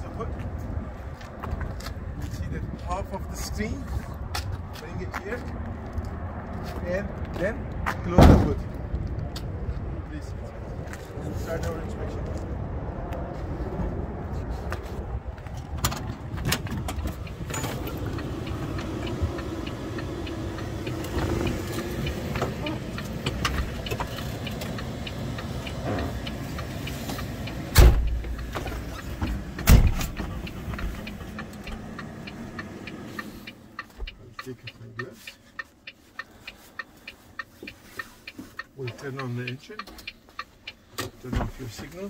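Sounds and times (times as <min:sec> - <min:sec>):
steady low rumble: 0:00.1 - 0:34.7
knocks and clicks in truck cab: 0:15.4 - 0:32.7.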